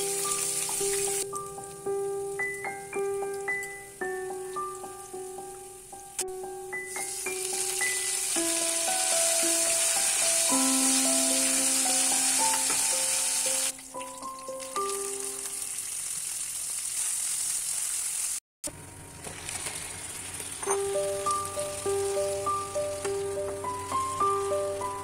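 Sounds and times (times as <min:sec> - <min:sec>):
hot oil sizzling in a pan: 0:00.0 - 0:18.4, 0:19.1 - 0:25.0
simple single-note melody: 0:20.6 - 0:25.0.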